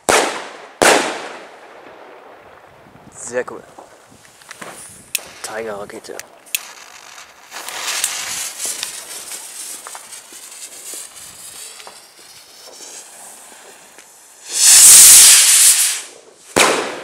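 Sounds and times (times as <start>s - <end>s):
firework crackles: 0.0s - 17.0s
firework rocket hissing: 6.5s - 17.0s
firework bang with echo: 16.6s - 17.0s.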